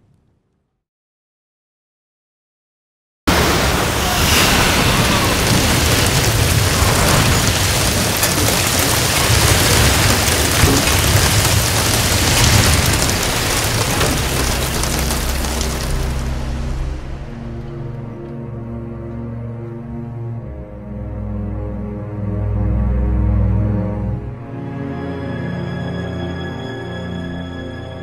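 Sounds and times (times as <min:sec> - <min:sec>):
loud dense rushing noise: 0:03.3 - 0:17.4
deep rumble: 0:03.9 - 0:19.0.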